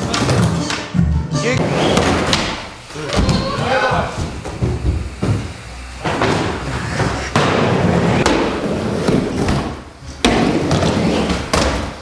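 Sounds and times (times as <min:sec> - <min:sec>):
skateboard rolling on hard floor: 0:00.0 - 0:02.6, 0:03.2 - 0:12.0
skateboard slaps: 0:06.1 - 0:12.0.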